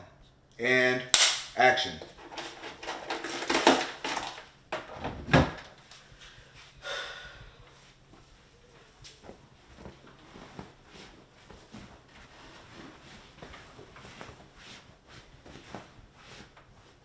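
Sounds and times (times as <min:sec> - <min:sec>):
rustling: 0:07.7 - 0:17.0.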